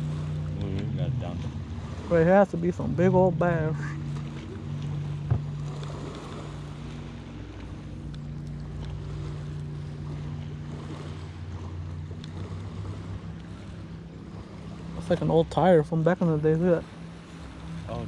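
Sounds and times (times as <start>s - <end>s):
wind buffeting microphone: 0.0s - 8.1s
boat motor running: 0.0s - 18.0s.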